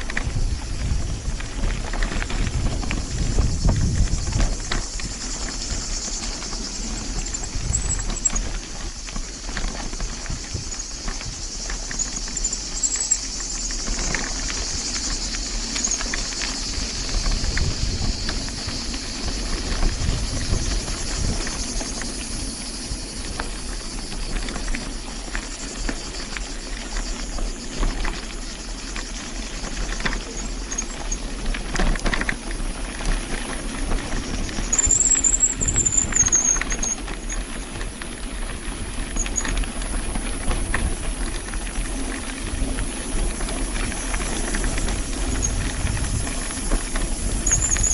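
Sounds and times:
bicycle rattling over bumps: 0.0s - 47.9s
wind on microphone: 0.0s - 47.9s
high squeal: 34.7s - 37.0s, 47.4s - 47.9s.

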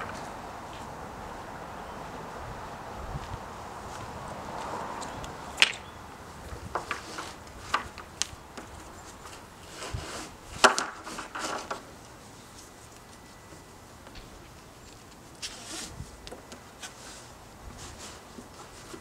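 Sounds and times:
strap webbing rustling: 14.6s - 19.0s.

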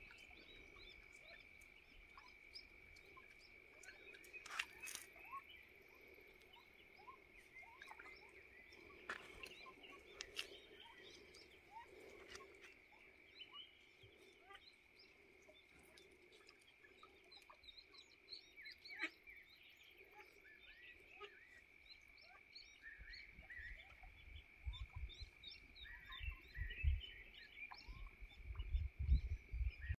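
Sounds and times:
ducklings peeping: 0.0s - 5.6s, 6.3s - 30.0s
wind buffeting microphone: 24.2s - 25.5s, 26.1s - 30.0s.

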